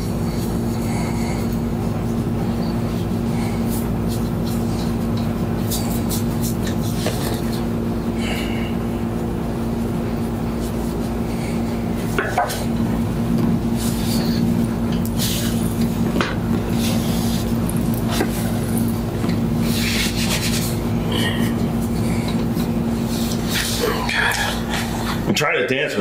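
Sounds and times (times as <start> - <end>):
low hum: 0.0 - 25.3
hands rubbing on shirt: 19.6 - 20.8.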